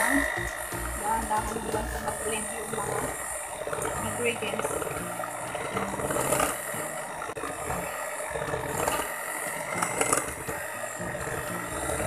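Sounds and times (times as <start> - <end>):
beaters clicking against glass bowl: 0.0 - 2.3
electric hand mixer motor whine: 0.0 - 12.0.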